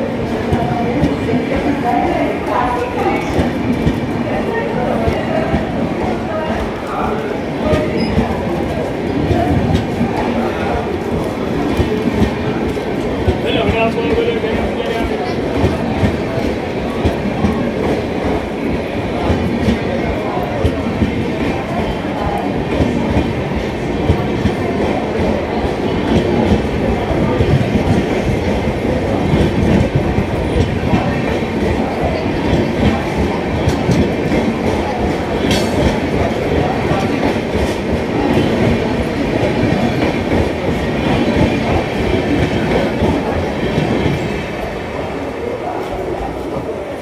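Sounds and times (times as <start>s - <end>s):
train wheels rumbling and clicking: 0.0s - 47.0s.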